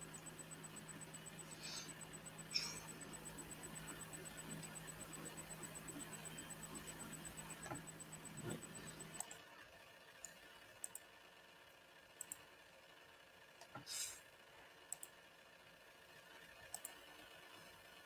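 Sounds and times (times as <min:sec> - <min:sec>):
computer mouse clicks: 0:00.1 - 0:09.4, 0:10.2 - 0:11.1, 0:12.2 - 0:12.4, 0:14.9 - 0:15.2, 0:16.6 - 0:17.1.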